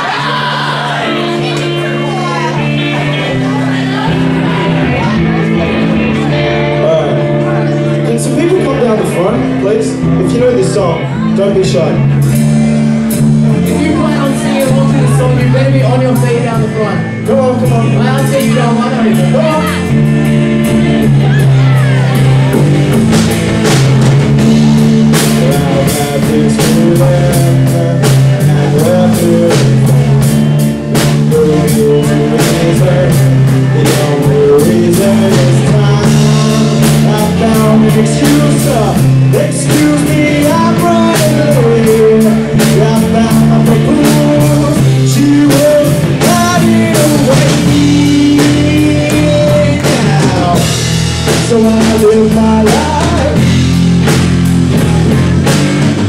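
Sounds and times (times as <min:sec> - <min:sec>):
drum kit: 0:00.0 - 0:56.0
electric guitar: 0:00.0 - 0:56.0
person singing: 0:13.1 - 0:22.7, 0:24.4 - 0:53.7.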